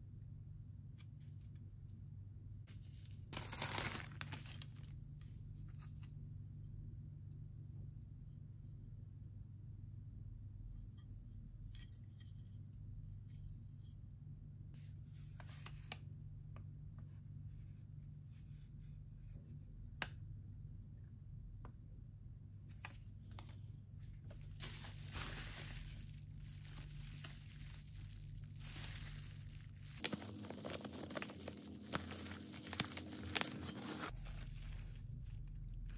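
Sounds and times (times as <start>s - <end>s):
low steady hum: 0.0s - 35.9s
paper rustling: 2.8s - 4.9s, 22.7s - 35.9s
bubble wrap crinkling: 2.8s - 5.0s, 24.2s - 35.9s.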